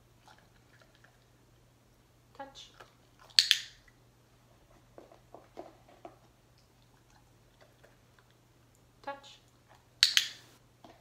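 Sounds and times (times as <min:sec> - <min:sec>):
training clicker snaps: 0:03.4 - 0:03.8, 0:10.0 - 0:10.5.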